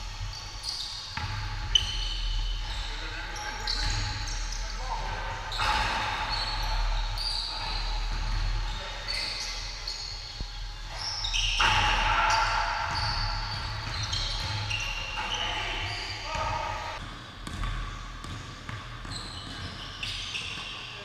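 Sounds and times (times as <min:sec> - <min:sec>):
sneakers squeaking: 0:00.0 - 0:21.0
basketball bouncing: 0:01.1 - 0:03.0, 0:10.3 - 0:20.6.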